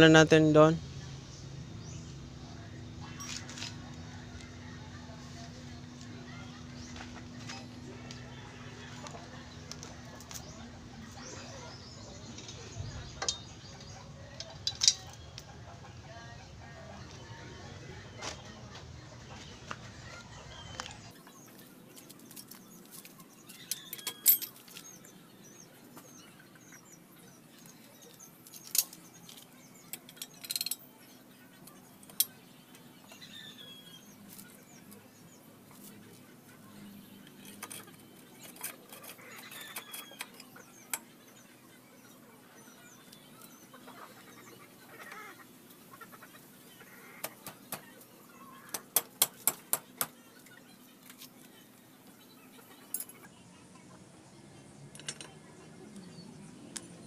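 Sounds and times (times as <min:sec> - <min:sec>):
birds chirping faintly: 0:00.0 - 0:57.0
metal parts clinking: 0:23.6 - 0:24.9, 0:28.4 - 0:30.8.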